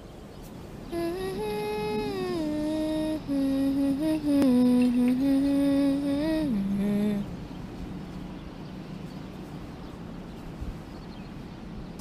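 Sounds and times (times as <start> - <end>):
person humming a slow melody: 0.9 - 7.5.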